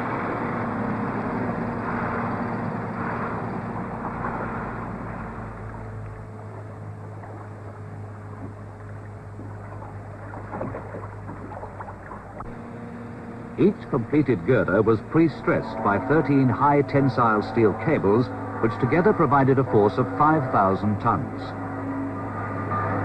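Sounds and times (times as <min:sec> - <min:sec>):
engine and machinery noise: 0:00.0 - 0:23.0.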